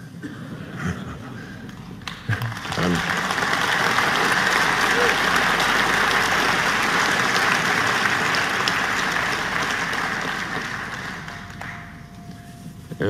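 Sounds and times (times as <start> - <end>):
audience applauding: 1.7 - 12.2.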